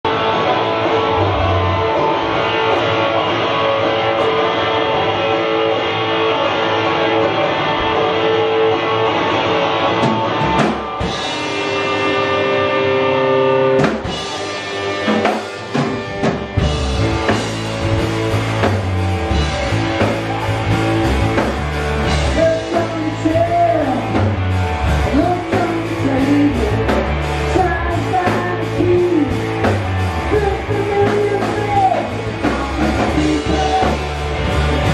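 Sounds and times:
live rock band playing: 0.0s - 34.9s
man singing: 22.2s - 24.4s, 25.0s - 34.2s.

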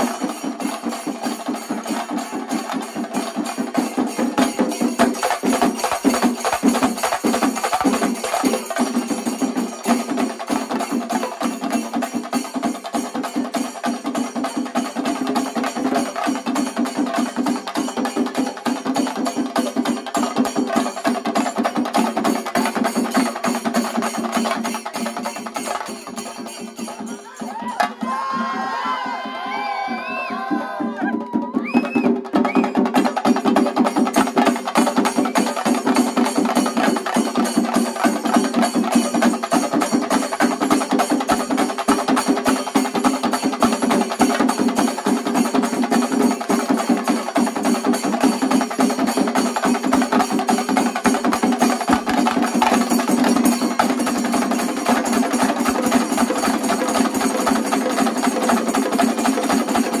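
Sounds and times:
cymbals: 0.0s - 29.0s
drums beaten with sticks: 0.0s - 60.0s.

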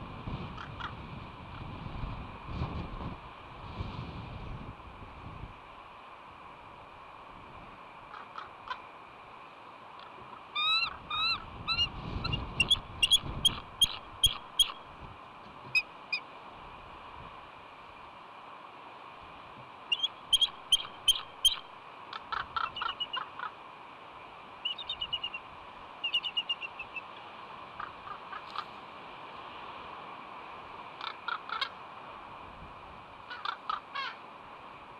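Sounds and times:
eagle piping chitter calls: 10.0s - 14.9s, 19.9s - 23.6s, 24.6s - 27.2s, 31.0s - 31.7s.

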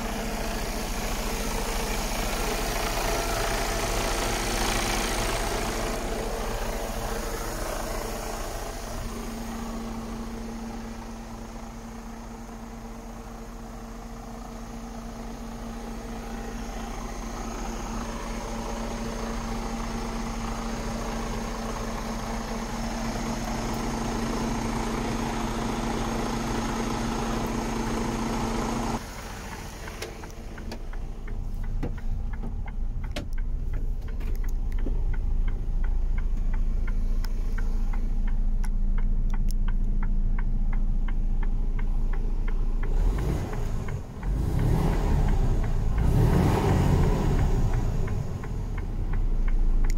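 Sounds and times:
diesel truck engine idling: 0.0s - 49.9s
scattered clicks: 29.5s - 44.3s, 47.4s - 49.9s.

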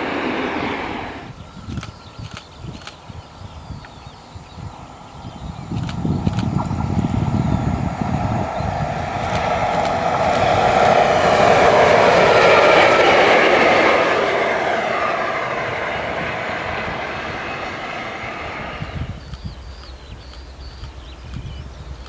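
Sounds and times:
locomotive wheels on rails: 4.8s - 22.0s.

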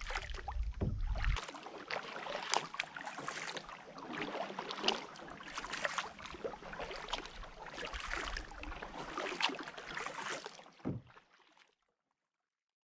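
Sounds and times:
low thump: 0.0s - 1.4s, 10.8s - 11.1s
paddle strokes splashing water: 0.0s - 11.6s.

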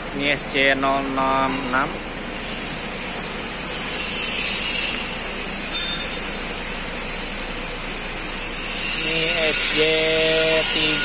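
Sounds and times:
workshop background noise: 0.0s - 11.0s
metallic clink: 5.7s - 6.3s.

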